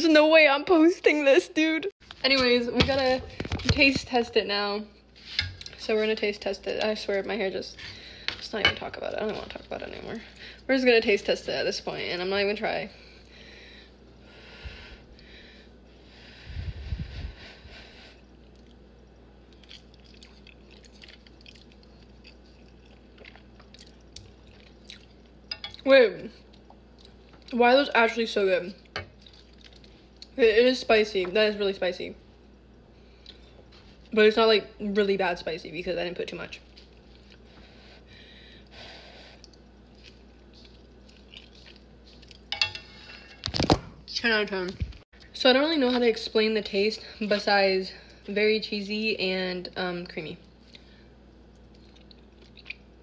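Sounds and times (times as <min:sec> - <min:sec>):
chewing noodles: 0:18.2 - 0:25.8, 0:26.4 - 0:27.6, 0:28.8 - 0:30.4, 0:36.6 - 0:37.8, 0:38.6 - 0:42.5, 0:50.6 - 0:53.0.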